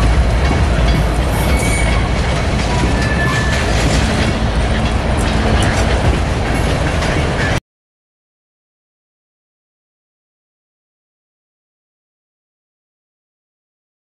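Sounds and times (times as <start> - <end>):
train wheels rumbling on rail: 0.0 - 7.6
wheels and couplers clanking: 0.0 - 7.6.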